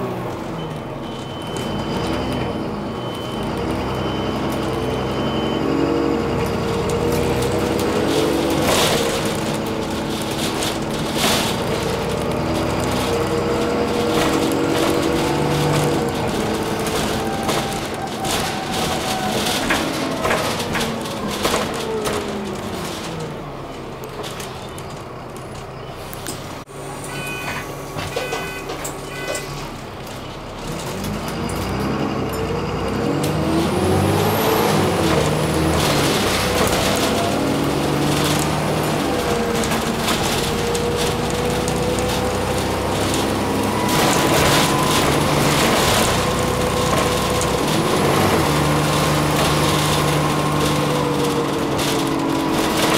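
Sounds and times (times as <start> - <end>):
bus diesel engine drone: 0.0 - 52.9
road noise: 0.0 - 52.9
rattling of bus fittings: 6.2 - 26.7, 27.5 - 33.0, 34.6 - 52.9
sharp clatter: 7.0 - 23.4, 34.7 - 52.9.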